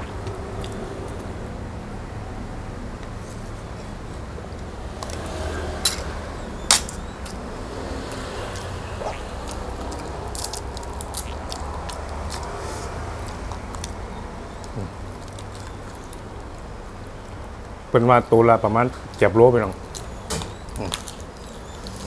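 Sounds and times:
shrimp shells cracking: 8.5 - 12.6, 13.2 - 14.0, 14.6 - 16.2, 20.8 - 22.0.

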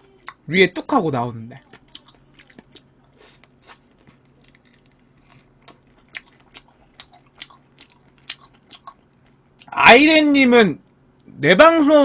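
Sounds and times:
chewing and crunching: 1.6 - 9.7.

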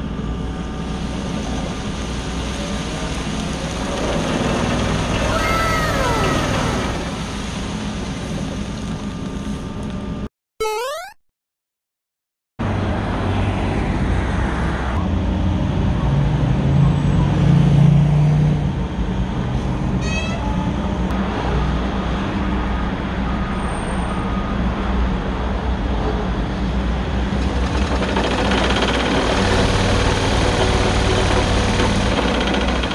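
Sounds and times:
diesel engine running: 26.3 - 32.9.

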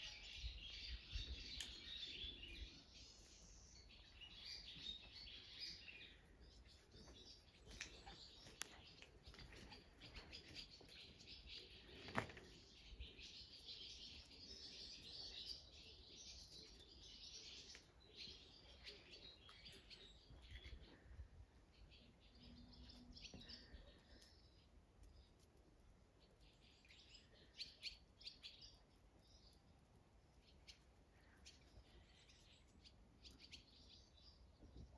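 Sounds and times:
small birds chirping: 0.0 - 34.9.

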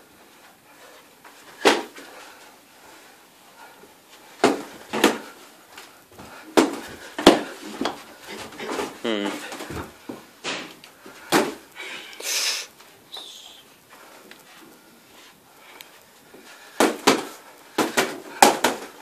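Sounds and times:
boxing glove punches slapping: 1.6 - 2.0, 4.4 - 5.3, 6.5 - 7.6, 16.8 - 19.0.

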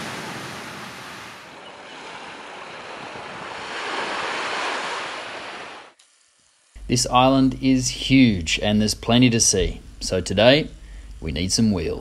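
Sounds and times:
small waves washing on beach: 0.0 - 6.0.

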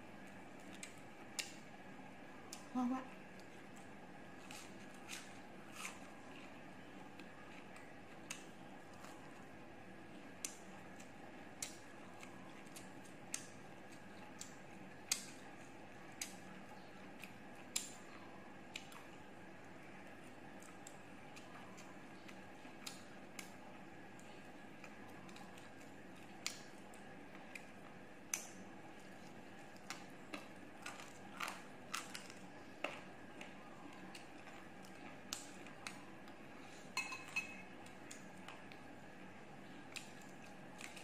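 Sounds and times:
chicken wing torn and chewed: 20.1 - 36.4.

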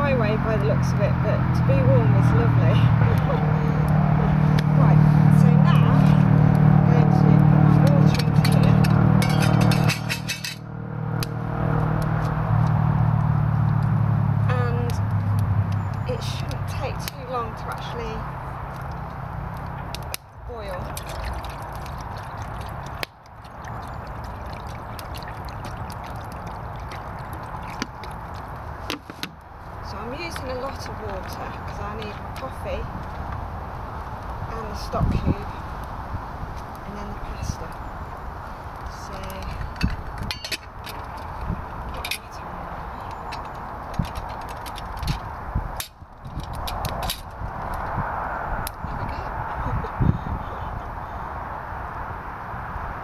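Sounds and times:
wood fire crackling and popping: 17.0 - 34.4
water pouring into metal pot: 20.8 - 28.6
wind rushing: 44.9 - 53.0.

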